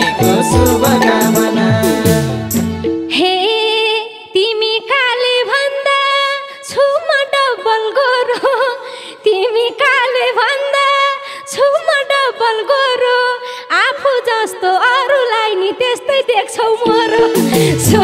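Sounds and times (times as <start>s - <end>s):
band accompaniment: 0.0s - 3.1s, 16.9s - 18.0s
ornamented lead melody: 0.0s - 3.2s.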